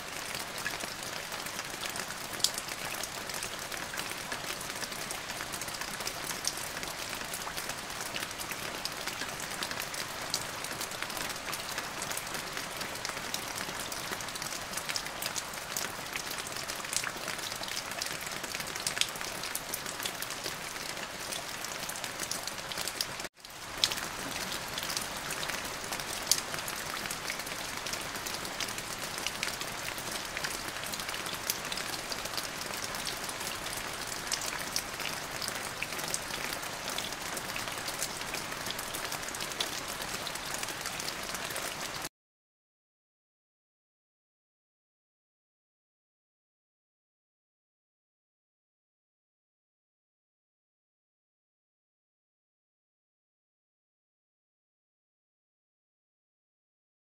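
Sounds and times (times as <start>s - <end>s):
steady rain with drop ticks: 0.0s - 42.1s.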